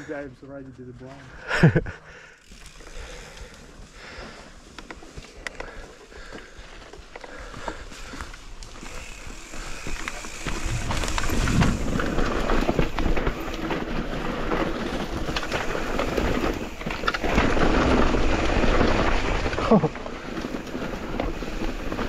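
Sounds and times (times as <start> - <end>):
bike rattling and clicking: 0.0 - 22.0
tyres rolling over dirt: 0.0 - 22.0
wind rushing over microphone: 10.6 - 13.4.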